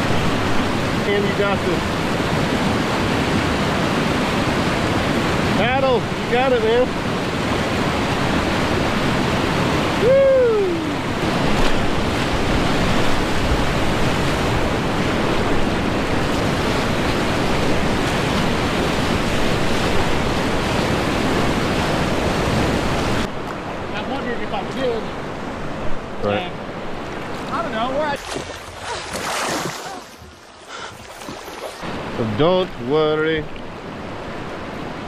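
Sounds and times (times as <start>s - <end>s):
whitewater rapids rushing: 0.0s - 30.4s
person shouting: 10.0s - 11.0s.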